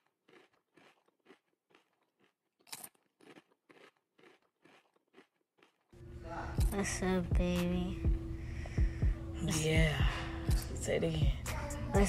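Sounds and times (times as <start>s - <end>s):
faint crunching: 0.0s - 6.0s.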